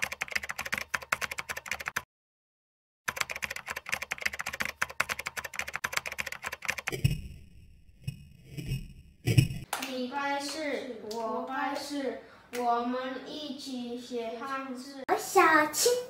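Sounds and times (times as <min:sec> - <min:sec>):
keyboard typing clicks: 0:00.0 - 0:02.0, 0:03.1 - 0:07.2
dull low thump: 0:08.1 - 0:09.6.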